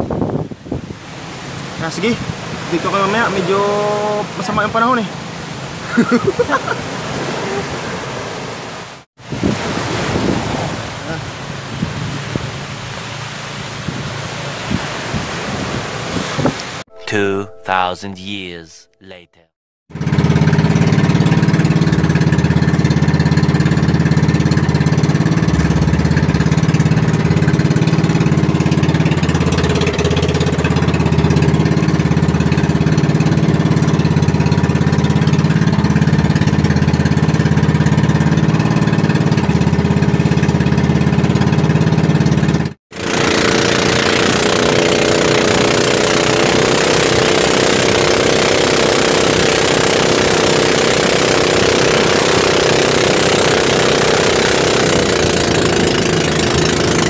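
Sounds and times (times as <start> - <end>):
small boat engine running: 0.0 - 16.9, 19.9 - 57.0.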